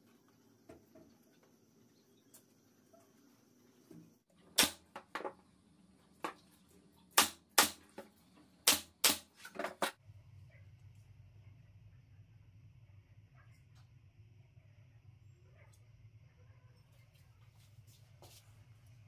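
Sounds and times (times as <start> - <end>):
pneumatic nailer firing: 4.6 - 4.9, 8.6 - 9.4.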